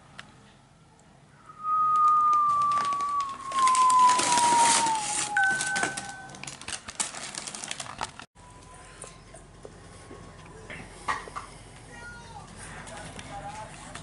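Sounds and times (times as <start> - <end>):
brief higher squeal: 1.5 - 6.3
long squeal sliding down in pitch: 1.5 - 6.3
paper bag rustling and crinkling: 2.0 - 8.3.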